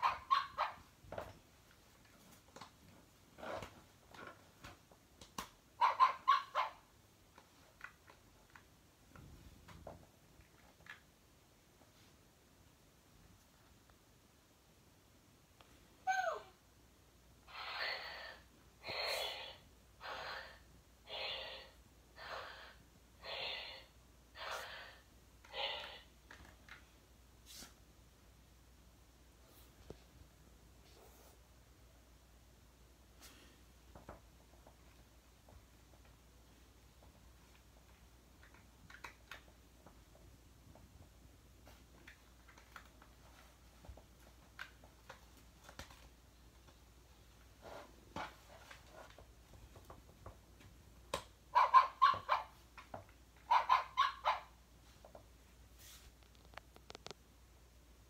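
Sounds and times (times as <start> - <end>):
toy dog yapping: 0.0 - 0.9, 5.8 - 6.9, 16.0 - 16.5, 51.5 - 52.6, 53.4 - 54.6
toy dog breathing huffs: 17.5 - 26.1.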